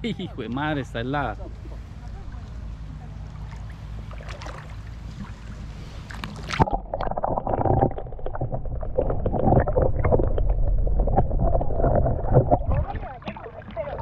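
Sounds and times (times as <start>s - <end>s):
underwater sloshing and gurgling: 1.4s - 14.0s
camera plunging into water: 6.1s - 13.8s.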